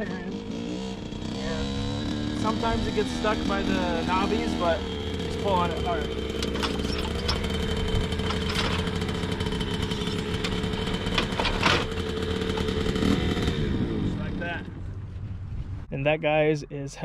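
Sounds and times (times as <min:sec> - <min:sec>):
engine idling: 0:00.0 - 0:15.5
metal clanks and knocks: 0:06.2 - 0:12.8.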